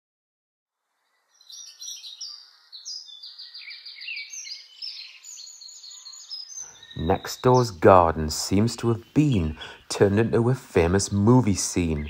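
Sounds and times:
songbirds chirping and trilling: 0.9 - 12.0
faint steady hiss: 6.6 - 12.0.

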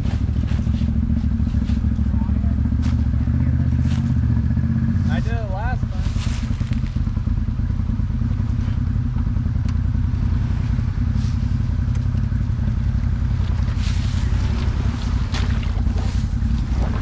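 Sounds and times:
vehicle engine running low: 0.0 - 17.0.

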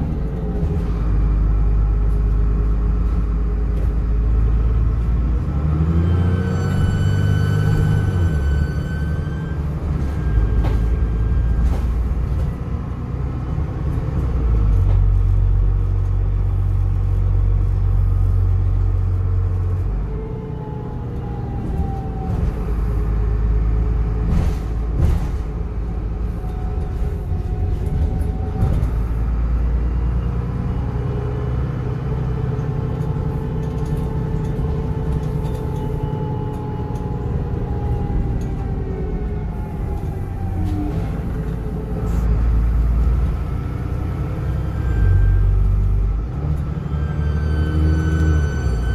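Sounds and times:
diesel bus engine rumble: 0.0 - 48.9
turbocharger whistle: 6.0 - 9.7, 46.7 - 48.9.

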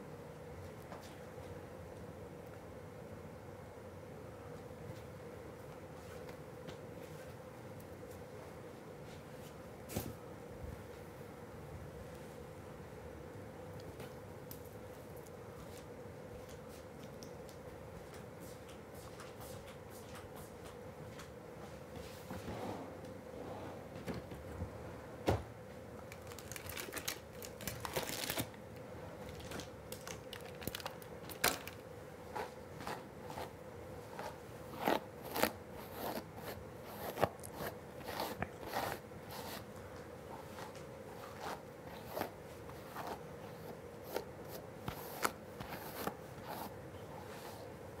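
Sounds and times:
faint hum: 0.0 - 48.0
small crackles and clicks: 26.1 - 28.6.

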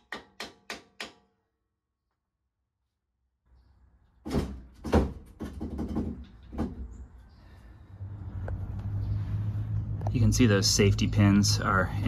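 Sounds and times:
sharp knocks on metal: 0.0 - 1.3, 4.2 - 6.9.

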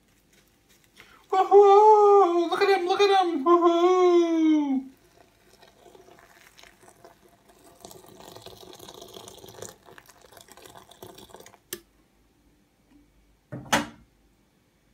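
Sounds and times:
water running into a jug: 4.9 - 11.8.

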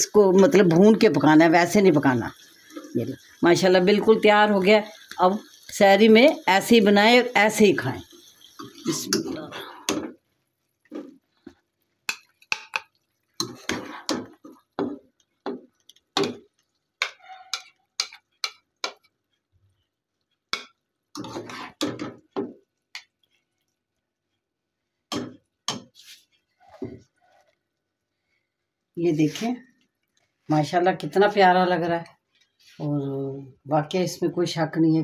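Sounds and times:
spatula scraping a wok: 10.8 - 12.6, 13.3 - 15.6, 20.6 - 22.5, 25.2 - 27.6.

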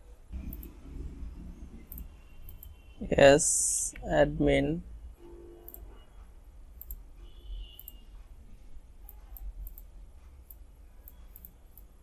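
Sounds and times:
steady low hum: 0.0 - 12.0
computer mouse clicks: 0.5 - 0.8, 1.9 - 2.7, 6.8 - 7.0, 7.8 - 8.0, 9.1 - 12.0.

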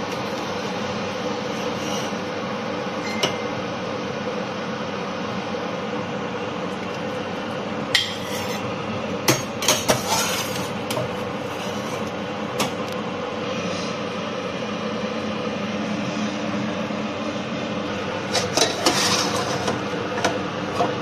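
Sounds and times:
steady rushing hum: 10.7 - 20.7.

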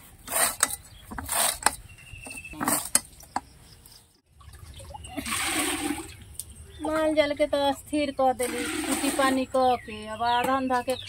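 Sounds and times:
water pouring into metal pot: 4.4 - 6.2, 8.4 - 9.5.

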